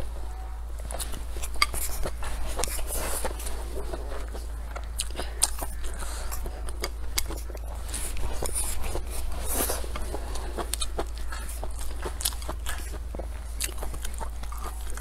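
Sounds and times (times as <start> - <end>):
steady low hum: 0.0 - 15.0
wet chewing and lip smacks: 0.8 - 15.0.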